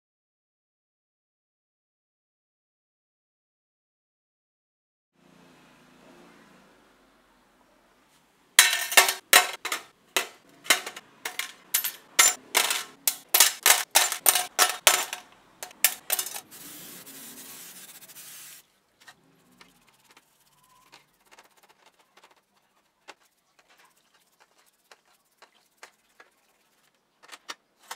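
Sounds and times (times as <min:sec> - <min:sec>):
metal parts clinking into steel tray: 0:08.6 - 0:16.5
steady hiss: 0:16.4 - 0:18.6.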